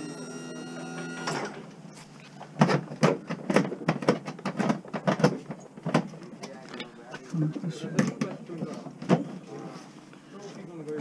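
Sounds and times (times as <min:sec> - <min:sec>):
wheelchair lift motor humming: 0:00.0 - 0:01.8.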